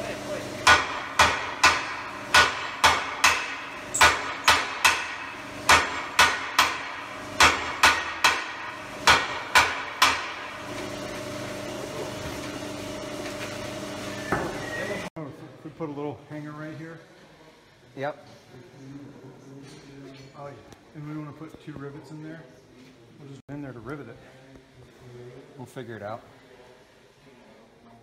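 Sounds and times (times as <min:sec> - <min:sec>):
sledgehammers striking hot iron: 0:00.6 - 0:11.1.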